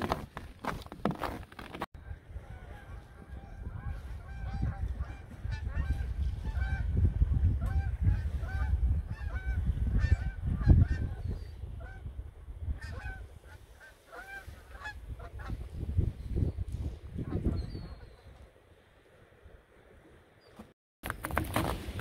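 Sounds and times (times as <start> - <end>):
geese honking: 2.0 - 6.9, 12.8 - 15.6.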